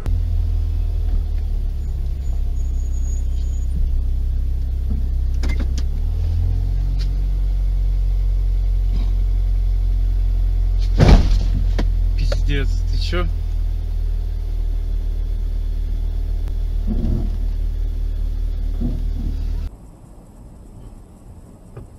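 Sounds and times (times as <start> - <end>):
car engine rumbling: 0.0 - 21.9.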